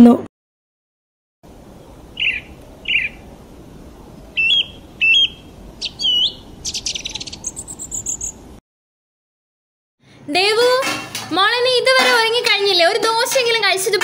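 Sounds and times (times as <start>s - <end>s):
birdsong chirps and whistles: 1.7s - 8.5s.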